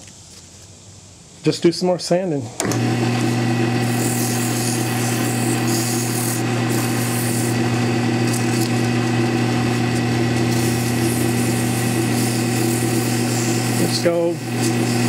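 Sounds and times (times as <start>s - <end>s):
wood lathe motor hum: 2.6s - 15.0s
sandpaper hissing on spinning wood: 3.2s - 15.0s.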